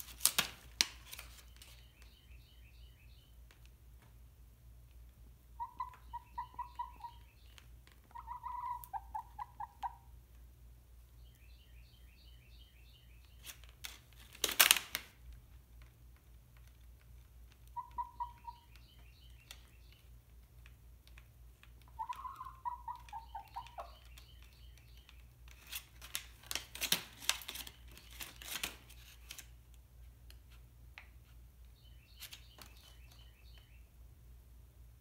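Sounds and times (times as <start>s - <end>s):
chicken calling: 5.5s - 7.4s, 8.1s - 10.1s, 17.7s - 18.9s, 21.8s - 24.2s
chicken pecking and rustling: 13.3s - 33.2s.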